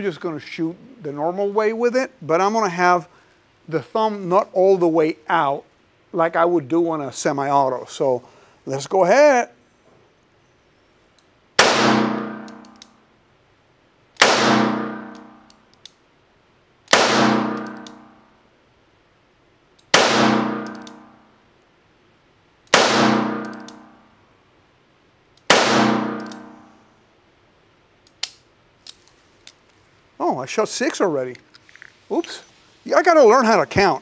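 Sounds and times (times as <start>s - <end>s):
revolver gunshots: 11.6s - 12.7s, 14.2s - 15.4s, 16.9s - 18.2s, 19.9s - 21.1s, 22.7s - 24.0s, 25.5s - 26.7s.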